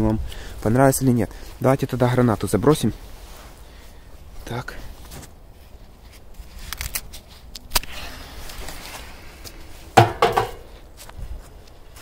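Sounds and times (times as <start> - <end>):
handling noises: 9.8 - 11.2
clatter of hard knocks: 10.0 - 10.7.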